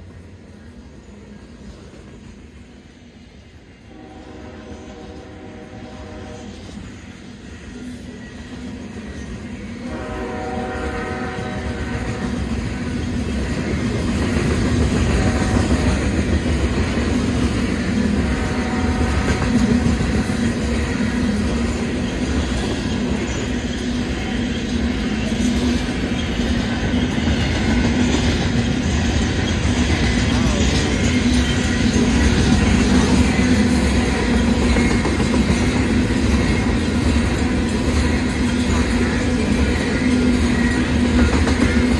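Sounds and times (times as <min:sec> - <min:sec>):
freight train rumbling and clattering: 0:00.0 - 0:41.9
train horn: 0:03.8 - 0:06.7, 0:09.8 - 0:12.5, 0:18.2 - 0:19.6.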